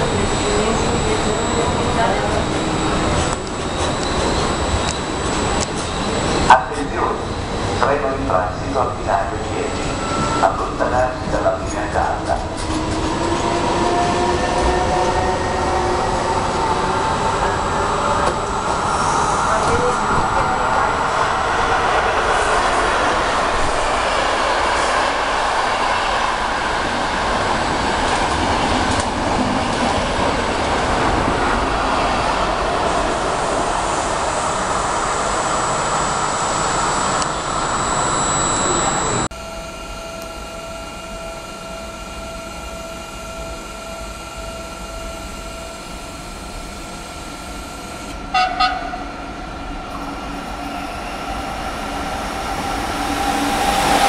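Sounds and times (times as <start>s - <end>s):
electric train humming: 0.0s - 54.0s
high-speed train rushing past: 0.0s - 54.0s
train horn blasts: 48.2s - 49.2s.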